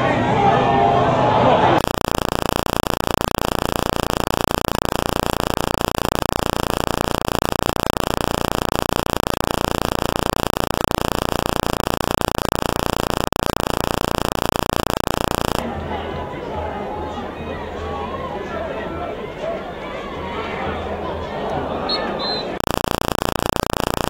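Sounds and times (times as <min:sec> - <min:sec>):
buzz: 0:01.8 - 0:15.6, 0:22.6 - 0:24.0
loud static hiss: 0:01.8 - 0:15.6, 0:22.6 - 0:24.0.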